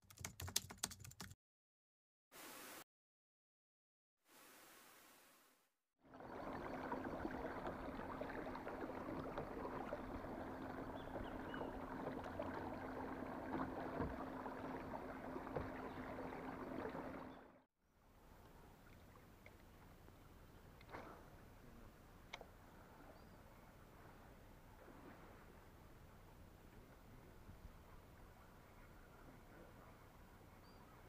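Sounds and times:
low hum: 0:06.1 - 0:17.6
water rushing along hull: 0:06.1 - 0:17.6.

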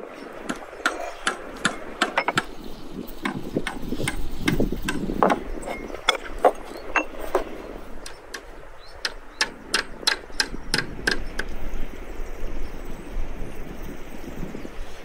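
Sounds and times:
clay pots knocking together: 0:00.9 - 0:02.5.

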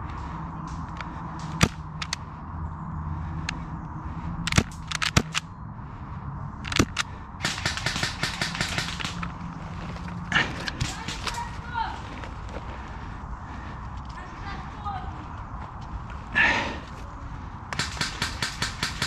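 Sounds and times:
airsoft gunfire: 0:06.7 - 0:09.2, 0:17.8 - 0:19.0.

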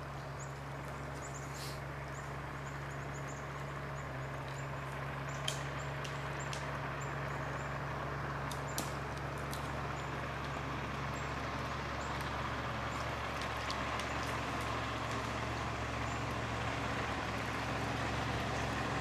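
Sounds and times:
motorboat engine drone: 0:00.0 - 0:19.0
sharp clicks: 0:05.3 - 0:06.7.

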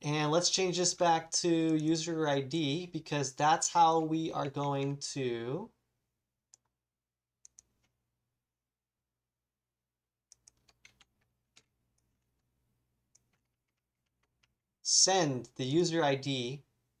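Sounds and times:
keyboard and mouse clicks: 0:06.5 - 0:06.8, 0:07.4 - 0:08.0, 0:10.3 - 0:12.5, 0:13.1 - 0:14.6.

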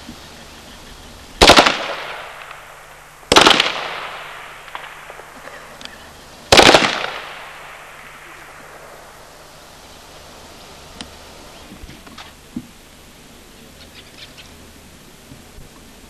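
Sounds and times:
automatic rifle bursts: 0:01.4 - 0:02.6, 0:06.5 - 0:07.4
gunshot echo: 0:01.4 - 0:05.7, 0:06.5 - 0:09.2.

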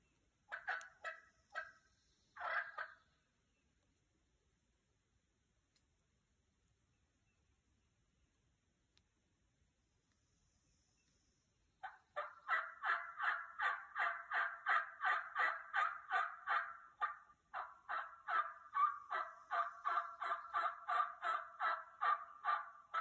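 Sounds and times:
turkey yelps: 0:00.5 - 0:01.8, 0:02.4 - 0:03.0, 0:11.8 - 0:23.0.

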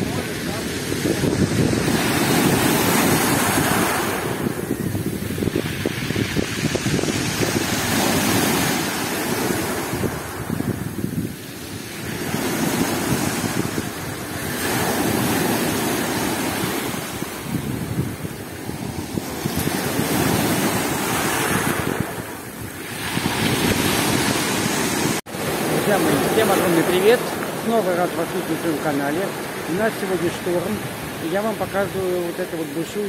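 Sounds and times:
wind buffeting microphone: 0:00.0 - 0:32.2
surf breaking on pebble shore: 0:00.0 - 0:33.0.

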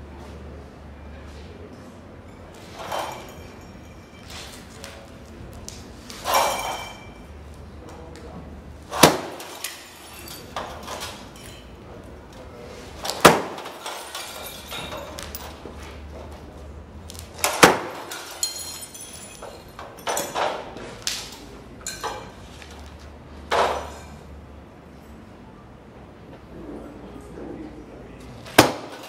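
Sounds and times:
glass clinks and knocks: 0:02.3 - 0:04.5, 0:06.2 - 0:07.3, 0:09.3 - 0:11.8, 0:13.5 - 0:15.6, 0:17.8 - 0:20.7, 0:21.8 - 0:22.4
glass tubes smashing on concrete: 0:02.3 - 0:07.5, 0:08.8 - 0:12.1, 0:12.9 - 0:15.6, 0:17.1 - 0:22.8, 0:23.5 - 0:24.2, 0:28.5 - 0:29.0.

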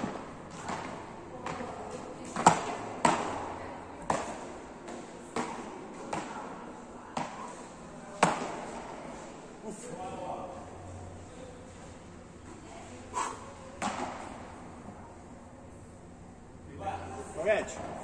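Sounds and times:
paddles hitting ball: 0:00.0 - 0:09.0, 0:13.8 - 0:14.5.

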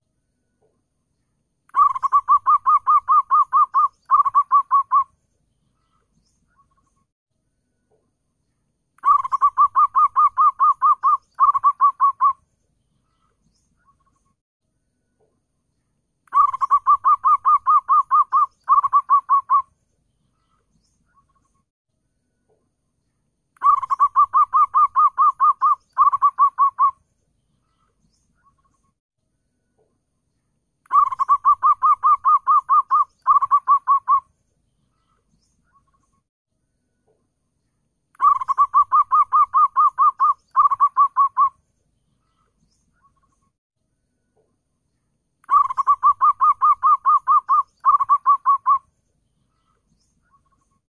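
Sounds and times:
dove cooing: 0:01.8 - 0:05.1, 0:09.0 - 0:12.4, 0:16.4 - 0:19.6, 0:23.6 - 0:27.0, 0:30.9 - 0:34.2, 0:38.2 - 0:41.5, 0:45.5 - 0:48.8.

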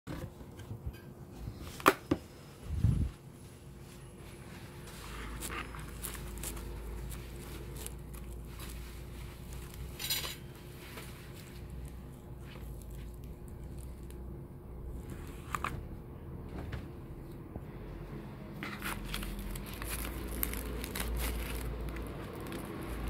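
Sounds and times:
low steady hum: 0:00.1 - 0:23.0
scrape: 0:02.4 - 0:06.5.

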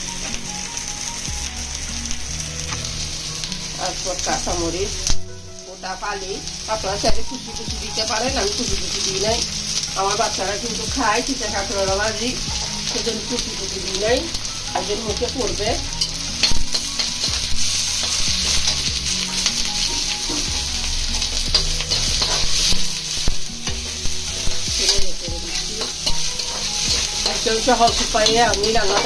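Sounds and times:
onions sizzling in oil: 0:00.0 - 0:29.0
spatula scraping a pan: 0:21.2 - 0:29.0.

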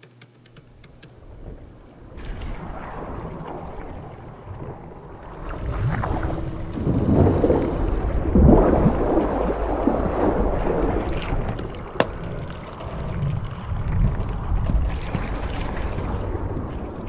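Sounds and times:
sharp click: 0:00.0 - 0:01.2, 0:11.5 - 0:12.2
bubbling: 0:00.6 - 0:17.0
underwater rushing rumble: 0:01.1 - 0:17.0.

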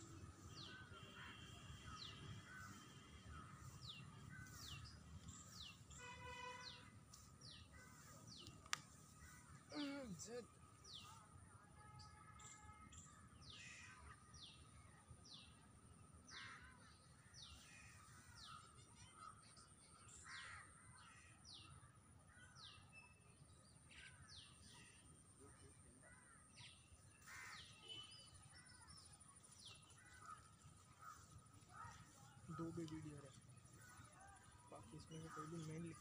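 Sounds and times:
birds calling: 0:00.0 - 0:11.1.

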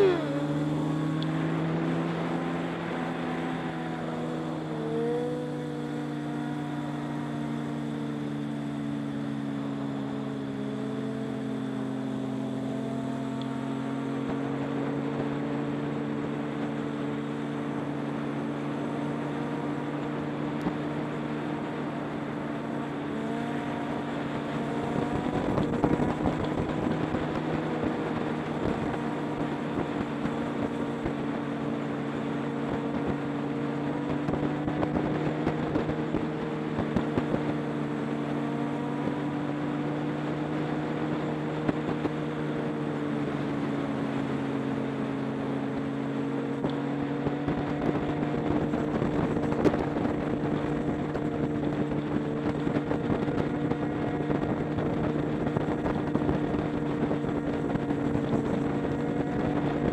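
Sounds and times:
motorcycle engines cruising: 0:00.0 - 0:59.9
wind buffeting microphone: 0:47.0 - 0:59.9.

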